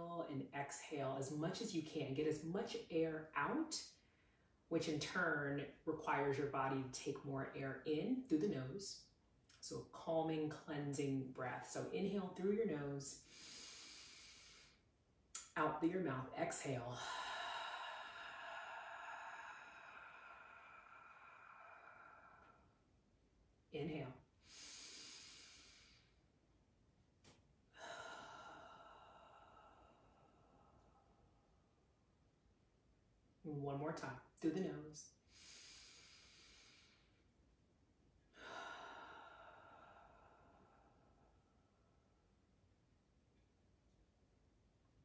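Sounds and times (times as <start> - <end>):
woman inhaling through nose: 13.2 - 14.8, 24.4 - 26.2, 35.3 - 37.2
woman exhaling sigh: 17.0 - 22.7, 27.8 - 31.2, 38.4 - 41.4
slow exhale through mouth: 24.4 - 26.2.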